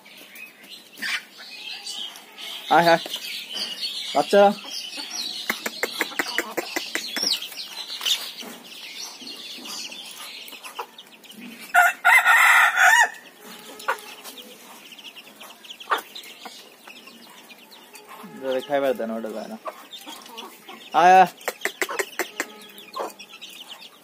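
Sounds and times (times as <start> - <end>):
chickens clucking: 0.0 - 24.0
chicks peeping: 0.0 - 24.0
beaks pecking clay bowl: 1.8 - 12.6, 13.3 - 24.0
rooster crowing: 11.8 - 13.2.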